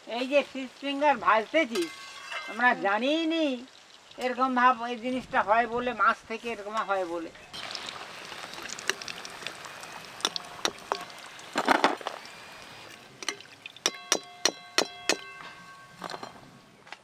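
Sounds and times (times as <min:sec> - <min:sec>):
food sizzling in hot oil: 0:00.0 - 0:15.0
spoon tapping wok ringing: 0:13.2 - 0:16.4.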